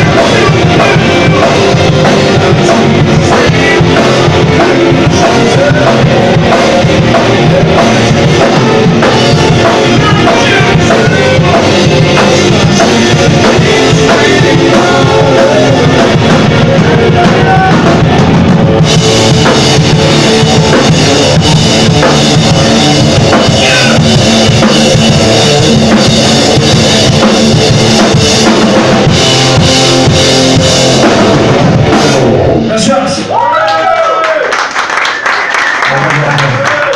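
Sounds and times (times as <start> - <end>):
person singing: 0.0 - 26.9
electric guitars: 0.0 - 34.0
bass guitar: 0.0 - 34.1
pounding drum kit: 0.0 - 34.9.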